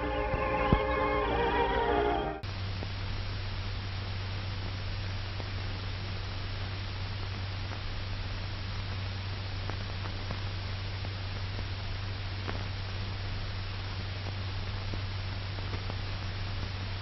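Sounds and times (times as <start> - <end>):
low hum: 0.0 - 9.5
film hiss: 0.0 - 17.0
faint crackles: 2.4 - 17.0.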